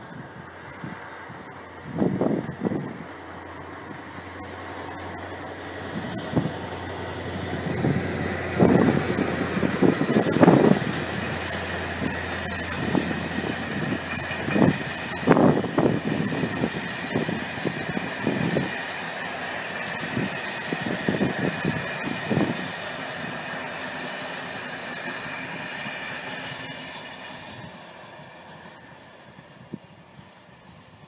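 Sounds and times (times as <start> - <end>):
train wheels clattering on rails: 3.0 - 29.0.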